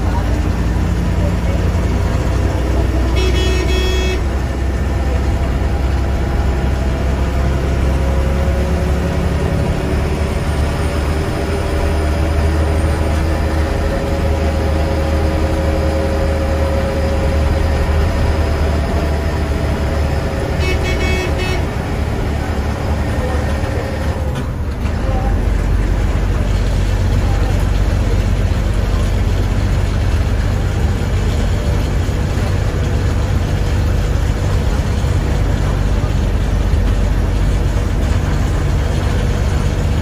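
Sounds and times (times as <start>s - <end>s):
bus engine rumbling: 0.0s - 40.0s
road noise: 0.0s - 40.0s
vehicle horn honk: 3.1s - 4.4s, 20.6s - 21.8s.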